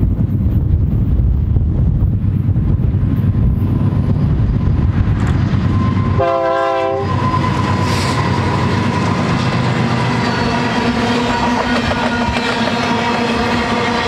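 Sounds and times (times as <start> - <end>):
diesel locomotives rumbling: 0.0 - 14.0
locomotive horn blast: 5.8 - 9.4.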